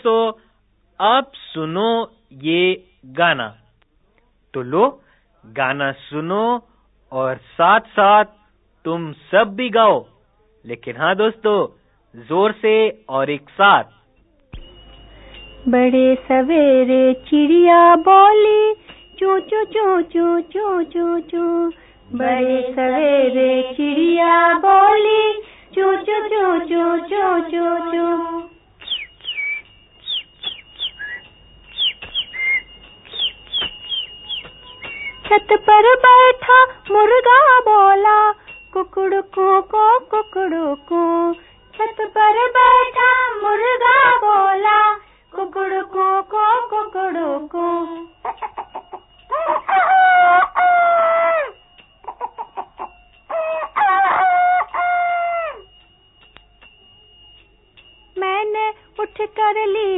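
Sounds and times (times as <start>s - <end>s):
faint high whistle tone: 14.2s - 15.7s, 28.4s - 35.4s
downward-sweeping whistles: 24.6s - 36.2s
rooster clucking: 48.2s - 51.1s, 52.0s - 54.8s
rooster crowing: 48.2s - 55.8s.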